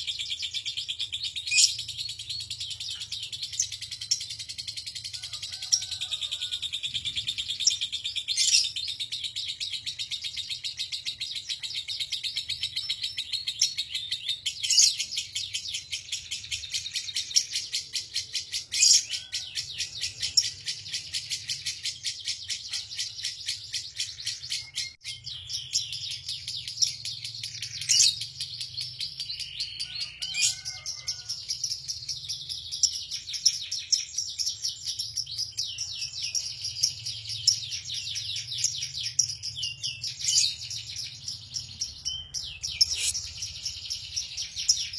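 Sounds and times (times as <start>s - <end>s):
bird chattering: 35.2s - 44.9s.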